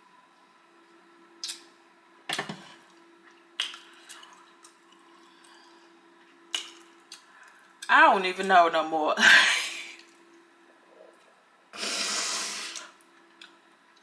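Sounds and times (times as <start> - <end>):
faint steady hum: 0.0 - 14.0
lip smacks and mouth clicks: 1.4 - 1.7, 3.6 - 5.0, 6.5 - 7.8.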